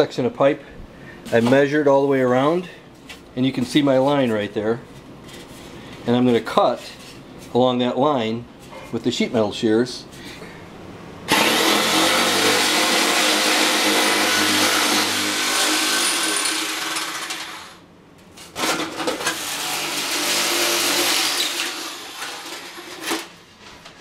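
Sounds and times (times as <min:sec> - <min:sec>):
electric shears cutting metal: 0:11.3 - 0:17.8, 0:18.6 - 0:23.3.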